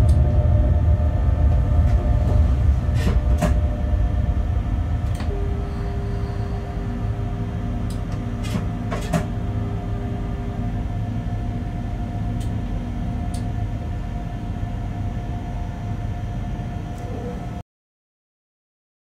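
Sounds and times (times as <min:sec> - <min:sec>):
faint steady hum: 0:00.0 - 0:17.6
locomotive running rumble: 0:00.0 - 0:17.6.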